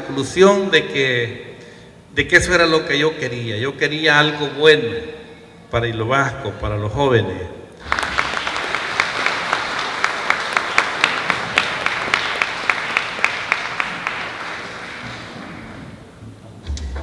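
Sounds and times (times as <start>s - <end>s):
audience applauding: 7.8s - 15.9s.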